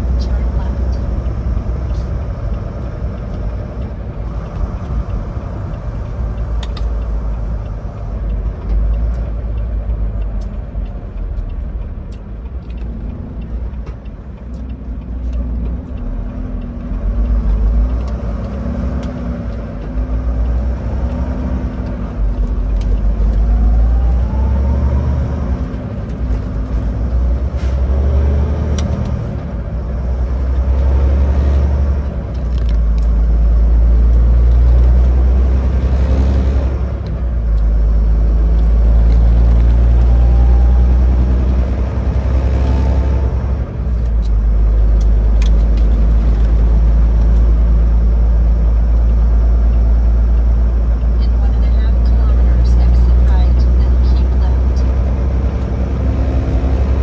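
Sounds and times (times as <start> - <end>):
road noise: 0.0 - 57.0
truck engine rumble: 0.0 - 57.0.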